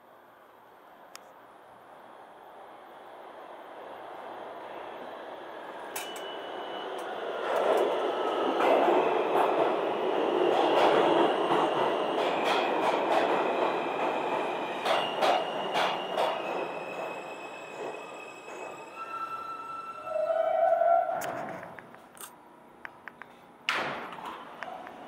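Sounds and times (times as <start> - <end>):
train wheels rumbling on rail: 5.6 - 19.0
high squeal of train wheels: 5.8 - 9.3, 13.4 - 21.3
sharp train clacks: 5.8 - 19.0.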